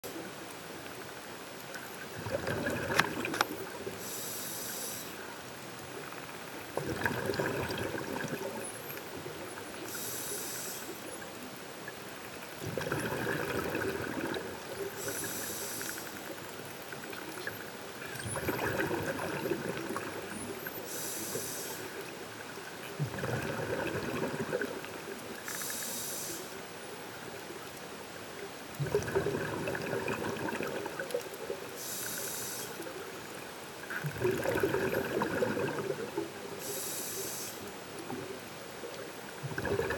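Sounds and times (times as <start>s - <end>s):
exhaled bubbles rushing: 2.0s - 3.9s, 6.6s - 8.7s, 12.6s - 15.3s, 18.0s - 20.5s, 23.0s - 25.2s, 28.8s - 31.5s, 33.9s - 36.4s, 39.4s - 39.9s
regulator inhalation hiss: 4.0s - 5.2s, 9.9s - 11.0s, 15.0s - 16.2s, 20.8s - 22.0s, 25.4s - 26.6s, 31.8s - 33.0s, 36.6s - 37.7s.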